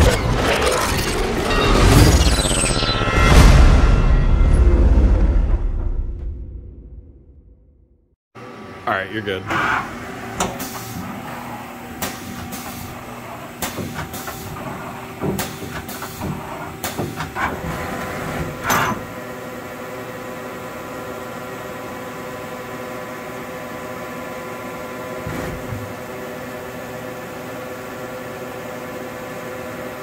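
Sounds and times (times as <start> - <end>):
lathe mechanical clunks and clicks: 9.5 - 11.2, 11.9 - 19.1.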